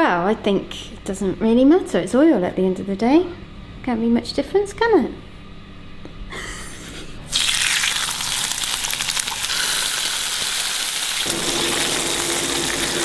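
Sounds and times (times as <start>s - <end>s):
steady hum: 0.0s - 10.0s
bacon sizzling in oil: 7.3s - 13.0s.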